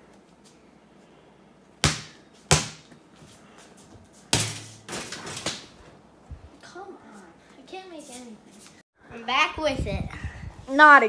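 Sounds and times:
basketball thudding on hard surfaces: 0:01.8 - 0:02.9, 0:04.3 - 0:05.6.

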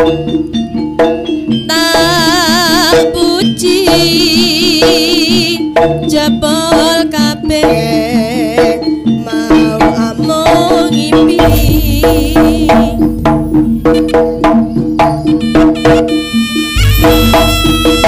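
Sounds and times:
hand drums beating fast rhythm: 0:00.0 - 0:18.0
reed pipe melody: 0:07.5 - 0:18.0
gong tones: 0:16.8 - 0:18.0.

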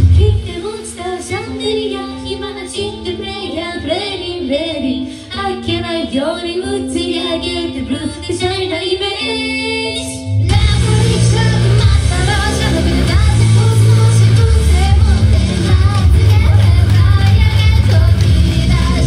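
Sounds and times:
high singing voice: 0:00.0 - 0:19.0
held chords: 0:10.5 - 0:19.0.

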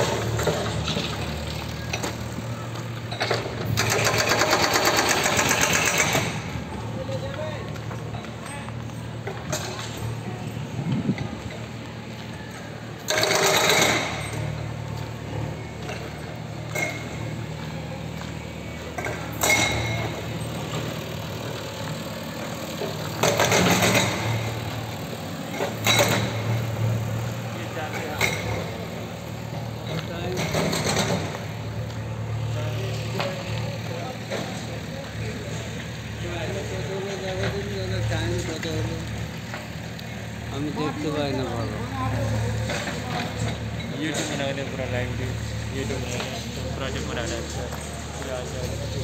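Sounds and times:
fast mechanical rattle of machine: 0:00.0 - 0:06.6, 0:13.0 - 0:14.6, 0:19.0 - 0:27.0
diesel engine running: 0:00.0 - 0:49.0.

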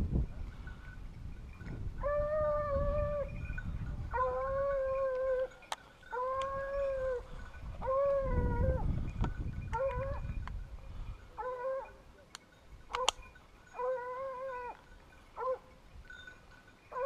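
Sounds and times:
dog baying howls: 0:02.0 - 0:03.4, 0:04.1 - 0:09.0, 0:09.7 - 0:10.3, 0:11.4 - 0:12.0, 0:12.9 - 0:14.8.

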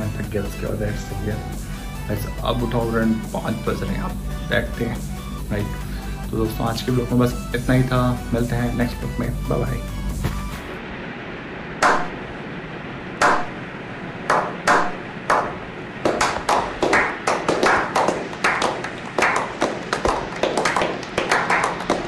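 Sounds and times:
men clapping: 0:15.3 - 0:22.0.

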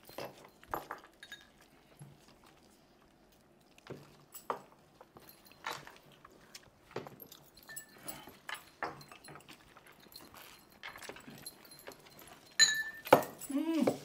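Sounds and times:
glasses clinking: 0:00.0 - 0:01.6, 0:07.0 - 0:14.0
people chewing: 0:00.0 - 0:12.6.

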